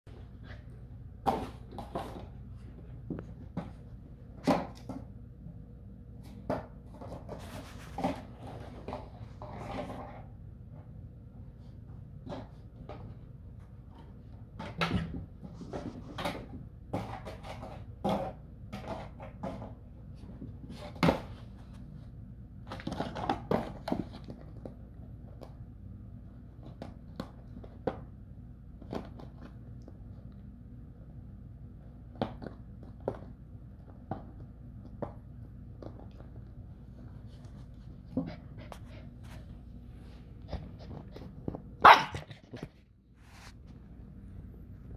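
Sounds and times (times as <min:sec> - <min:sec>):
dog chewing a plastic bottle: 0:22.7 - 0:24.8.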